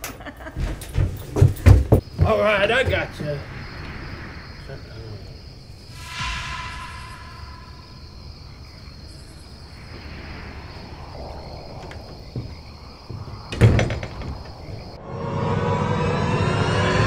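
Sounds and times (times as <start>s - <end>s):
night insects chirring: 0.2s - 17.0s
wooden door bang and clatter: 11.8s - 15.0s.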